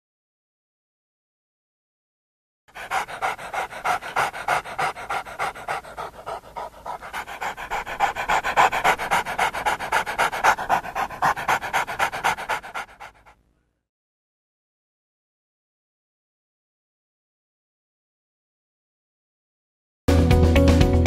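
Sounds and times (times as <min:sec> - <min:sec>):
dog panting: 0:02.7 - 0:13.4.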